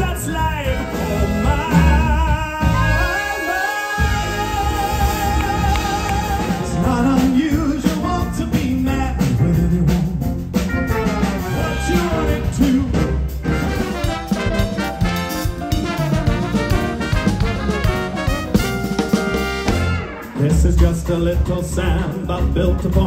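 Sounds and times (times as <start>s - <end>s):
man singing: 0.0s - 10.4s, 11.2s - 13.5s, 20.2s - 23.0s
live band with brass: 0.0s - 23.0s.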